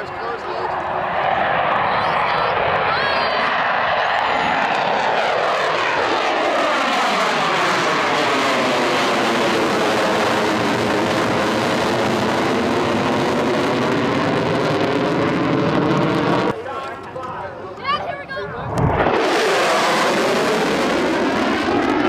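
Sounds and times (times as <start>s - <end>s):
fighter jet climbing: 0.0s - 22.0s.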